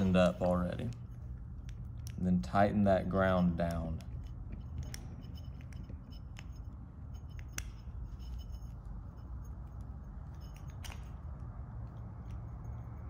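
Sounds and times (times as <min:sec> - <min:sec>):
screwdriver clicking and scraping metal: 0:03.1 - 0:13.0.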